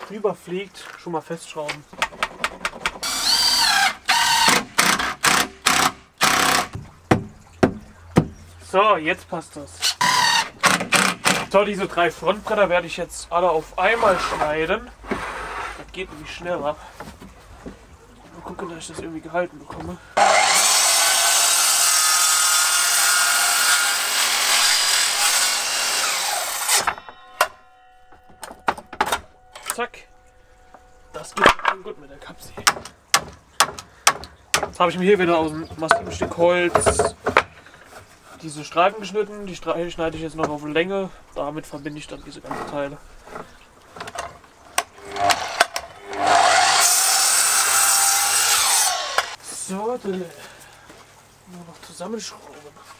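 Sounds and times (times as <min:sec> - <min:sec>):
sharp knocks: 0:01.7 - 0:03.1, 0:04.5 - 0:08.4, 0:26.7 - 0:29.7, 0:32.5 - 0:34.8
mitre saw cutting wood: 0:03.0 - 0:06.8, 0:09.8 - 0:11.6, 0:20.2 - 0:27.0, 0:44.9 - 0:49.4.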